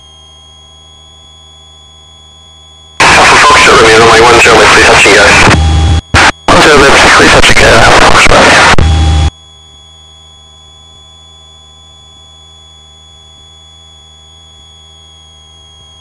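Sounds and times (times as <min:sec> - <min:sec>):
cockpit engine noise: 0:03.0 - 0:09.3.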